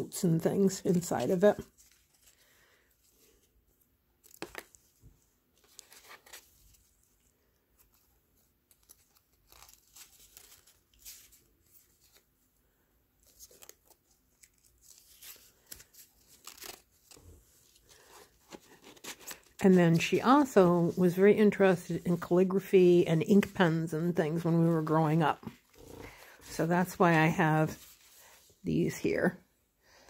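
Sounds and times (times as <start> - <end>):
paper rustling and crinkling: 0.3 - 3.6, 4.2 - 12.3, 13.2 - 21.2, 24.3 - 28.5.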